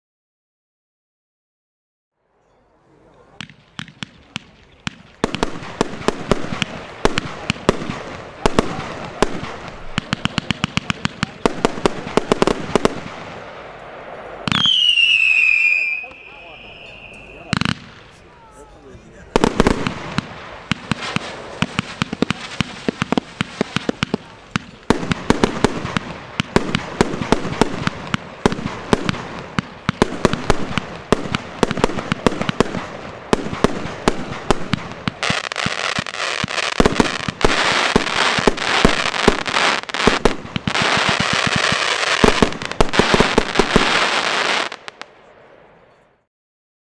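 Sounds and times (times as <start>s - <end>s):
firework shots firing: 3.3s - 18.2s, 19.3s - 45.1s
dense firework crackling: 3.3s - 45.4s
stars bursting with pops: 19.4s - 45.1s.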